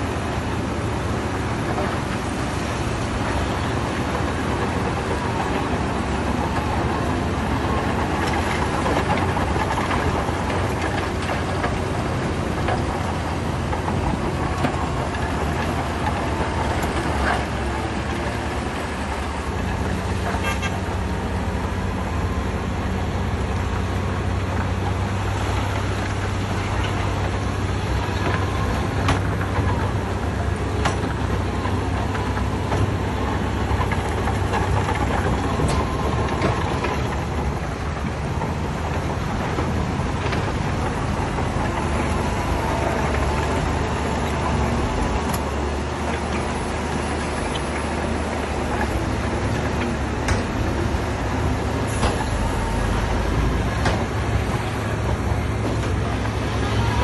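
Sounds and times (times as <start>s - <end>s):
heavy diesel machinery droning: 0.0s - 57.0s
sharp clanks and knocks: 39.5s - 56.8s.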